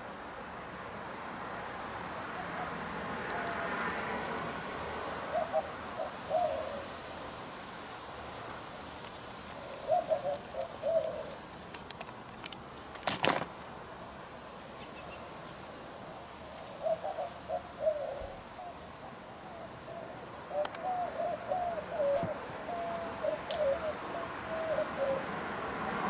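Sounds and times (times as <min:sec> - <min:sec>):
dove cooing: 0:05.2 - 0:07.0, 0:09.5 - 0:11.6, 0:16.5 - 0:25.4
sharp rustle: 0:08.4 - 0:13.6.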